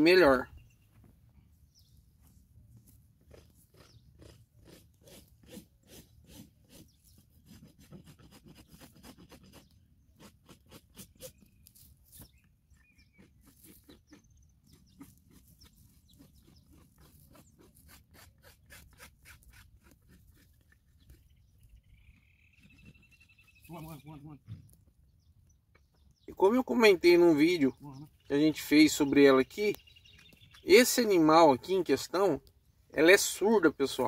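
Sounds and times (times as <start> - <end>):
hoof trimming tool scraping: 2.2 - 24.9.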